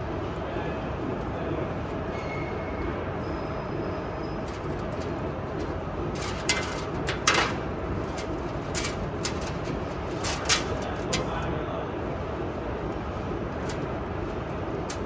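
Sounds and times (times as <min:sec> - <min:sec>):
machine running steadily: 0:00.0 - 0:15.0
metallic clicks and rattles: 0:04.4 - 0:11.5, 0:13.5 - 0:14.0, 0:14.7 - 0:15.0.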